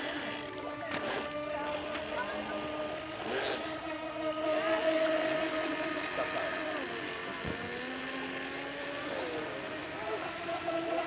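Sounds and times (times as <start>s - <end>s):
electric motor whine: 0.0s - 11.0s.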